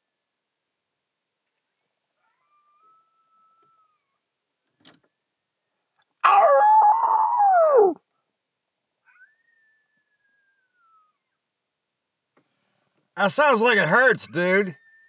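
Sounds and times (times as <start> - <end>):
coyote howling: 2.2 - 4.3, 6.2 - 8.0, 9.0 - 11.4, 14.3 - 15.0.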